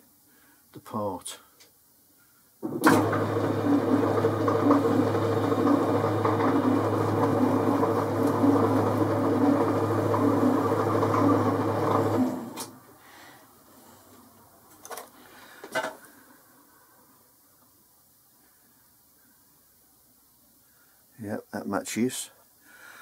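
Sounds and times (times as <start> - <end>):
lathe running with mechanical hum: 2.8 - 12.6.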